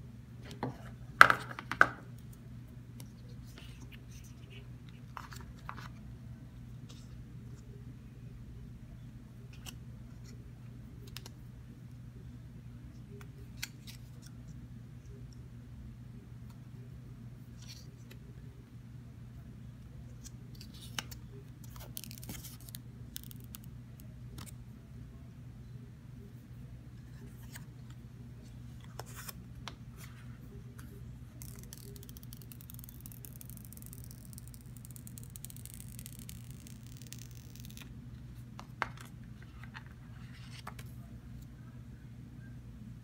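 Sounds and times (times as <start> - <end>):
plastic film crinkling and peeling: 31.4 - 37.9.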